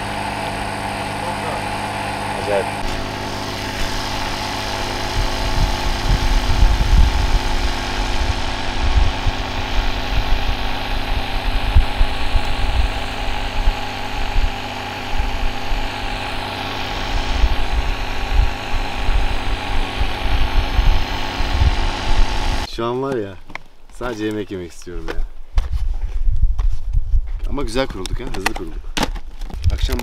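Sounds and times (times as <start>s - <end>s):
steady mechanical hum: 0.0s - 22.7s.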